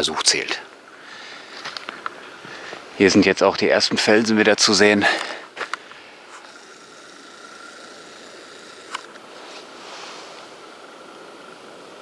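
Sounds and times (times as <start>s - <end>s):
faint steady hiss: 0.0s - 12.0s
thin high steady tone: 5.9s - 12.0s.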